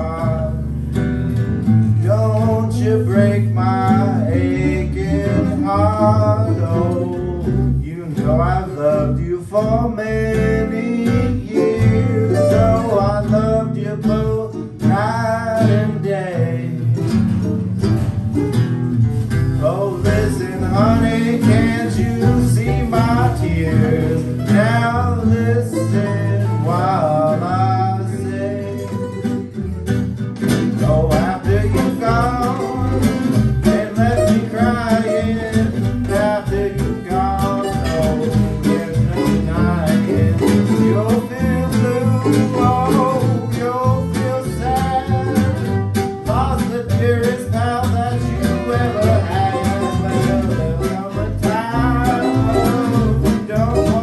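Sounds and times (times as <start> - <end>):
strummed acoustic guitars: 0.0 - 54.0
walking upright bass: 0.0 - 54.0
fiddle melody: 10.1 - 30.2, 30.9 - 54.0.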